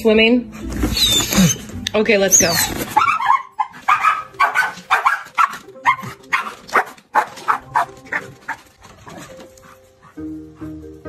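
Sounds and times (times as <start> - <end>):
dog yipping and barking: 2.3 - 9.3.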